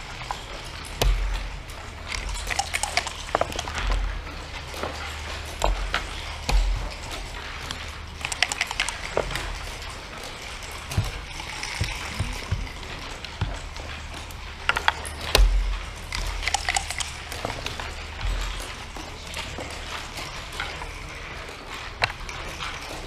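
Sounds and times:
game pieces clicking on board: 0:00.2 - 0:21.0
dice rattling on wooden board: 0:02.0 - 0:04.1, 0:05.4 - 0:09.6, 0:10.3 - 0:13.7, 0:14.6 - 0:19.0.

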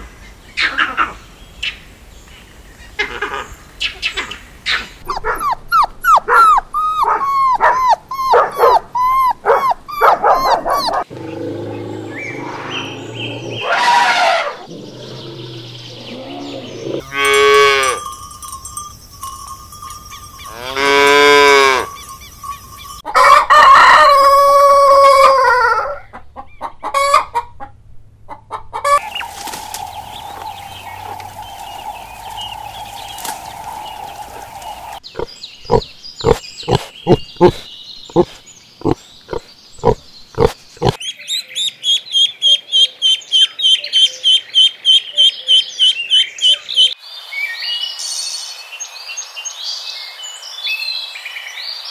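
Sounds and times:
puppy whimpering: 0:05.0 - 0:11.1
cow mooing: 0:14.5 - 0:18.1, 0:20.4 - 0:22.1.

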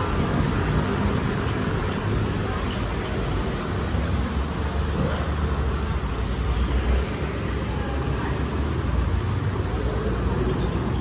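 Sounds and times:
street noise: 0:00.0 - 0:11.0
faint chatter: 0:06.8 - 0:11.0.

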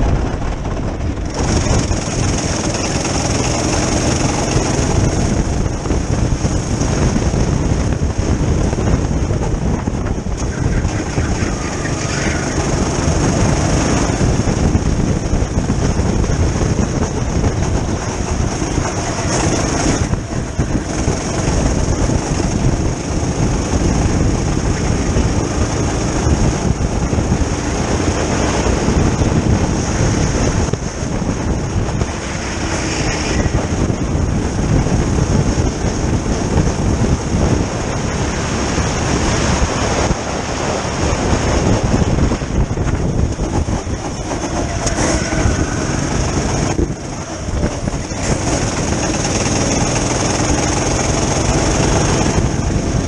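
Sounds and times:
go-kart engine running: 0:00.0 - 0:53.0
wind rumble on microphone: 0:00.0 - 0:53.0.

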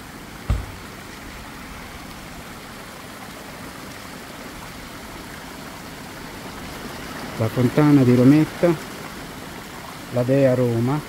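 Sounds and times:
fountain water splashing: 0:00.0 - 0:11.0
low thump: 0:00.5 - 0:01.2.

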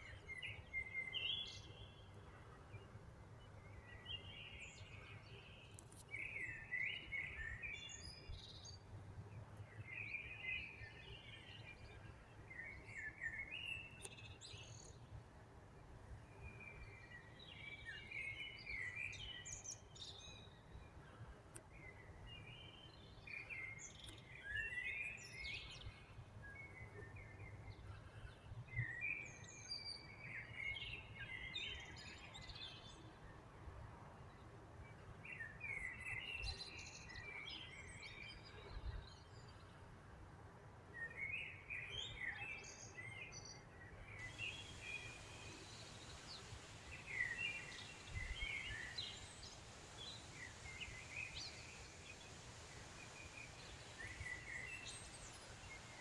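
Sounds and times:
songbirds chirping: 0:00.0 - 0:56.0
faint low outdoor rumble: 0:43.8 - 0:56.0.

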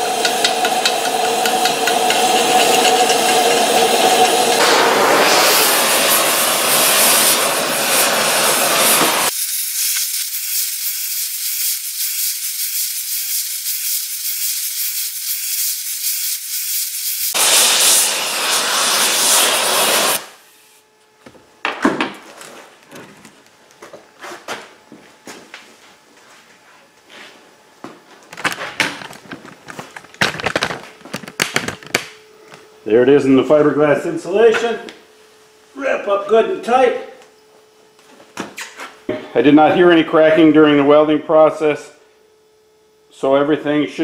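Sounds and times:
gas torch flame hissing: 0:00.0 - 0:20.8.

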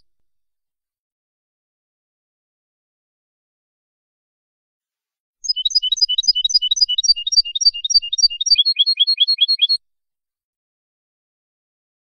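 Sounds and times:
finch singing: 0:05.4 - 0:09.8.

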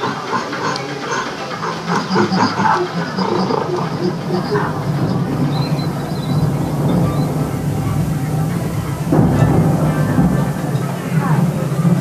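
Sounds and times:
gorilla calls: 0:00.0 - 0:07.0
background hiss: 0:00.0 - 0:12.0.

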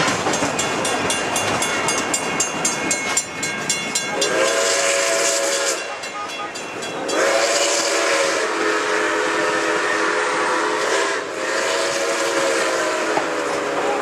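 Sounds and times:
train rolling noise: 0:00.0 - 0:14.0
steam whistle chord: 0:04.2 - 0:06.4, 0:07.1 - 0:14.0.

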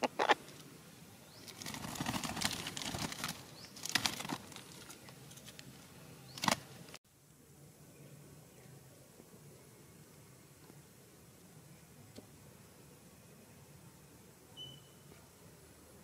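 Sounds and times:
bird wings flapping and rustling: 0:01.3 - 0:07.0.

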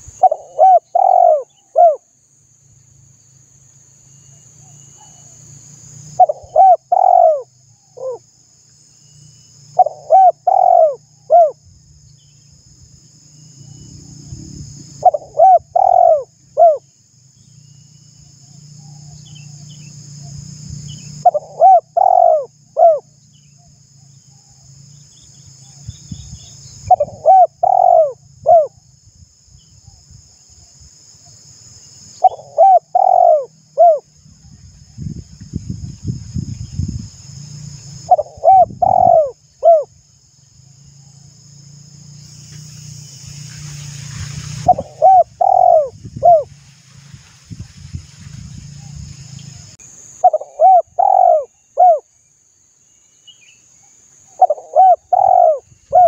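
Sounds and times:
dove cooing: 0:00.0 - 0:02.0, 0:06.2 - 0:08.2, 0:09.8 - 0:11.6, 0:15.0 - 0:16.8, 0:21.2 - 0:23.1, 0:26.9 - 0:28.8, 0:32.2 - 0:34.1, 0:38.1 - 0:39.9, 0:44.6 - 0:46.5, 0:50.2 - 0:52.1, 0:54.4 - 0:56.0.

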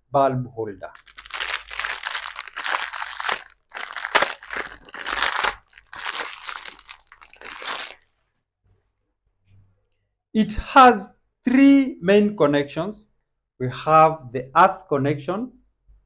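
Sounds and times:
plastic crunching and scraping: 0:01.0 - 0:08.1.

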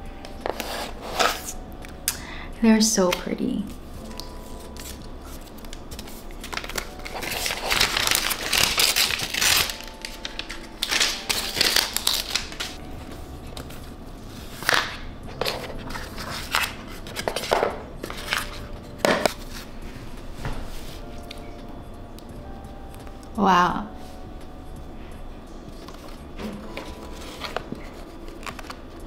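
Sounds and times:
rustling and crinkling packaging: 0:04.0 - 0:12.8, 0:13.5 - 0:19.7, 0:25.7 - 0:29.0.

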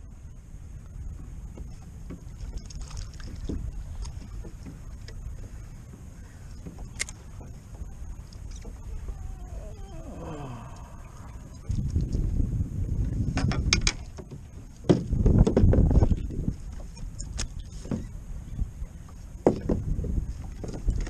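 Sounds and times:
water lapping against kayak hull: 0:00.0 - 0:21.0
wind buffeting microphone: 0:00.0 - 0:21.0
small clicks and knocks: 0:13.4 - 0:15.7.

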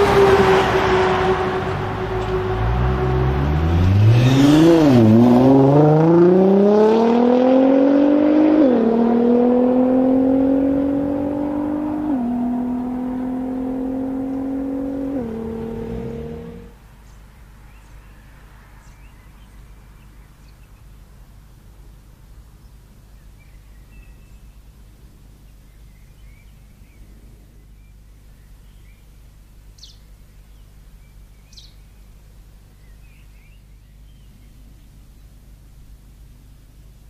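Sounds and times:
car engine accelerating hard: 0:00.0 - 0:16.8.

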